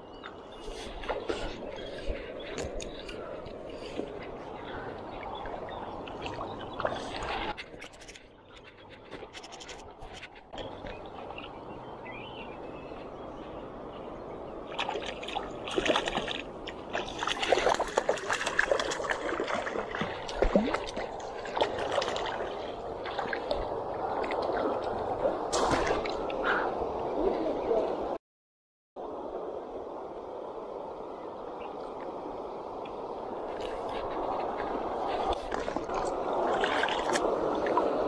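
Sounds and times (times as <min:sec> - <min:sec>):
river water trickling and splashing: 0:00.0 - 0:27.8, 0:29.7 - 0:38.0.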